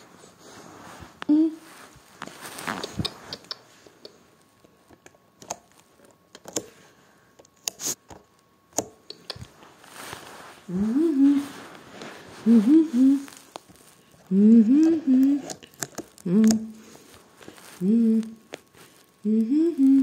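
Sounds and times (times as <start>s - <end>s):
person humming rising sounds: 1.2s - 1.7s, 10.7s - 11.7s, 12.4s - 13.4s, 14.3s - 15.6s, 16.2s - 16.8s, 17.8s - 18.4s, 19.2s - 20.0s.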